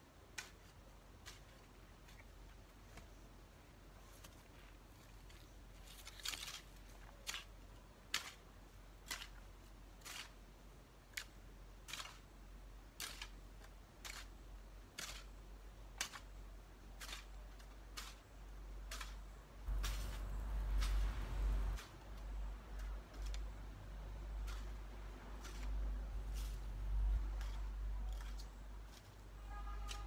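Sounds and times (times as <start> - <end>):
hoe chopping into soil: 18.9 - 22.0.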